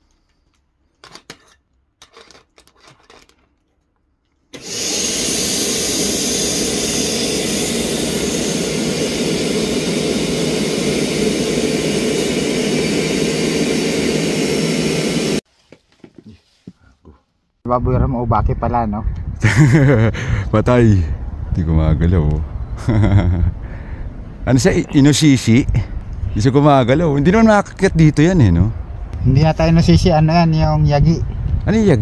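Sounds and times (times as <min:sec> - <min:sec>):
vacuum cleaner running: 0:04.6 - 0:15.4.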